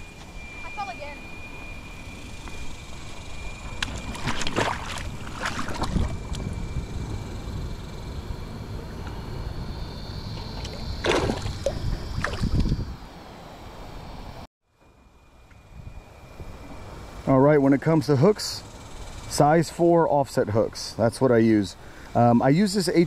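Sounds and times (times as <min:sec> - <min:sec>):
river water splashing: 0:03.8 - 0:06.2, 0:10.4 - 0:12.6.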